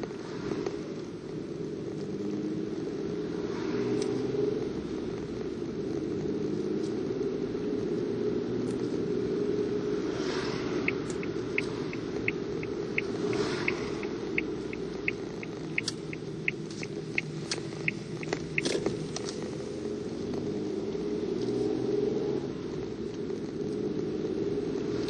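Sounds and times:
car rumbling on road: 0.0s - 25.0s
car turn signal ticking: 10.8s - 19.6s
sharp clicks: 10.9s - 19.5s.

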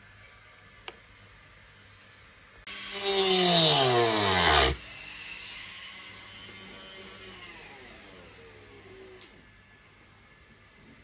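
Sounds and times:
power tool bogging and winding down: 2.7s - 9.4s.

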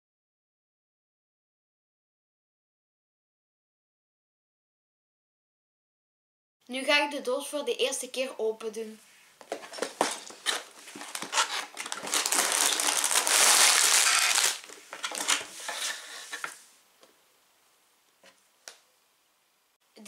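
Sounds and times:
plastic bags rustling: 9.4s - 16.6s.

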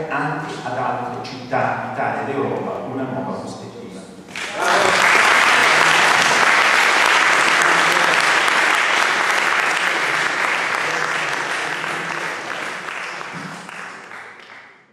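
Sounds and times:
audience applauding: 4.3s - 14.9s.

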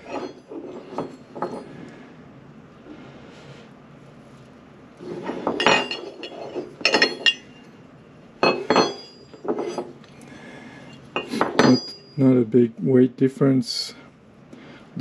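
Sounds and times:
metal footpegs clinking: 0.0s - 1.7s, 5.2s - 7.8s, 8.4s - 10.1s, 10.9s - 12.2s.

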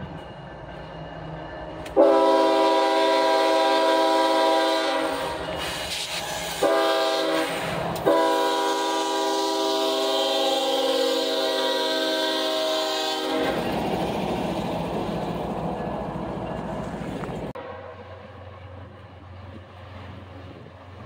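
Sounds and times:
locomotive rumble: 0.0s - 21.0s
locomotive air horn: 2.0s - 13.6s, 17.6s - 18.4s.

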